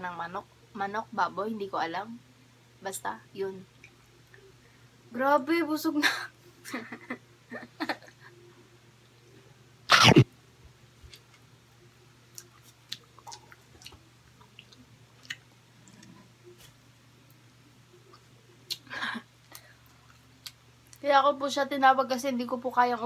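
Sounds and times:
low steady hum: 0.0 - 23.0
mouth clicks and chewing: 12.3 - 16.2, 19.5 - 21.0.

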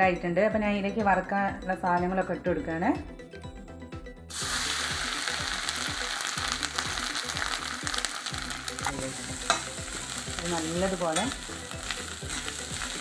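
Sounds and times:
food sizzling in hot oil: 4.3 - 13.0.

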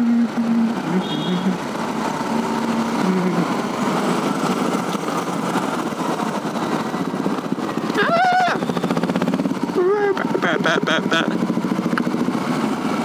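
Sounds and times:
motorcycle engine running: 0.0 - 13.0
road and wind noise: 0.0 - 13.0.

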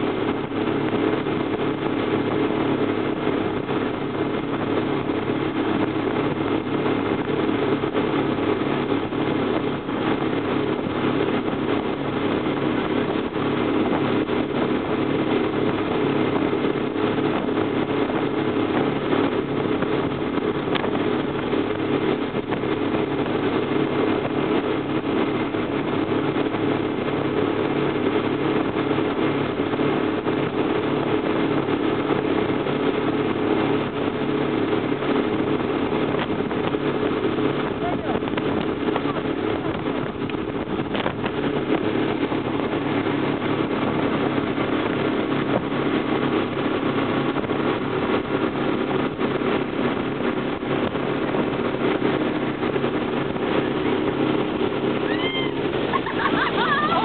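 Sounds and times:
motorboat engine running: 0.0 - 57.0
water rushing in wake: 0.0 - 57.0.

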